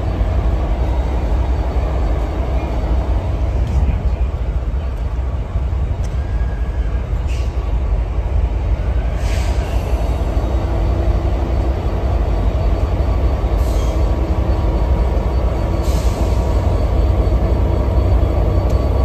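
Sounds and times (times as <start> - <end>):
diesel locomotive idling: 0.0 - 19.0
short air hisses: 9.2 - 10.0.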